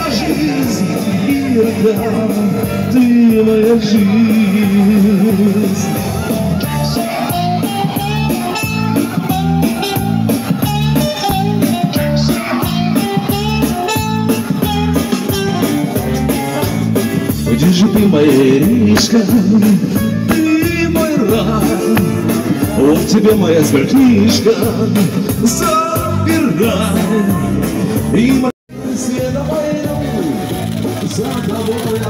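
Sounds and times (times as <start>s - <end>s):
person singing through speaker: 0.0s - 16.7s, 17.3s - 32.0s
dance beat: 7.0s - 23.8s.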